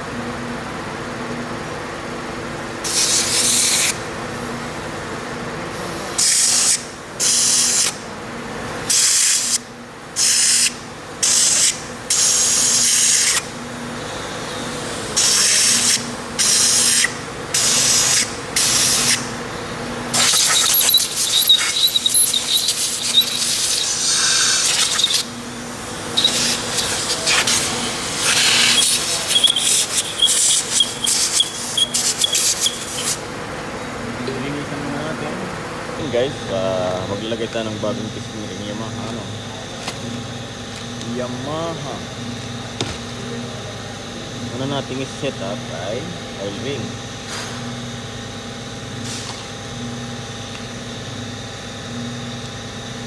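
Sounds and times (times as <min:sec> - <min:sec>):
air blow gun hissing: 0:20.1 - 0:25.3, 0:26.1 - 0:33.2
thin air whistle: 0:20.2 - 0:25.3, 0:26.2 - 0:26.6, 0:28.2 - 0:33.2.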